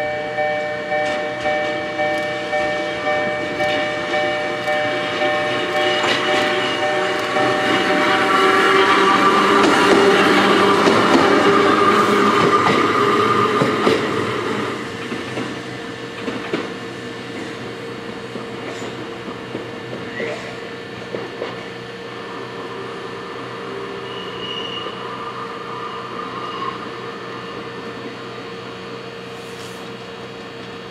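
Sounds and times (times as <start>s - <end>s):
electric railcar moving: 0.0s - 30.9s
faint wheel squeals: 24.0s - 26.8s.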